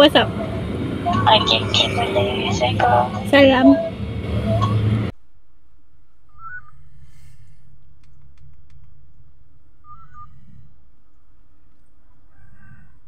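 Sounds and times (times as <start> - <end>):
steady low hum: 0.0 - 8.0.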